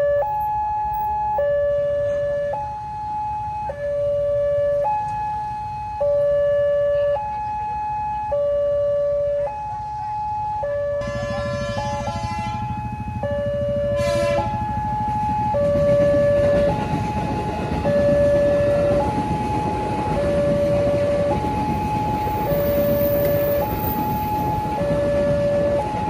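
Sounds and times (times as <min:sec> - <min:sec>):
two-tone warning siren: 0:00.0 - 0:26.0.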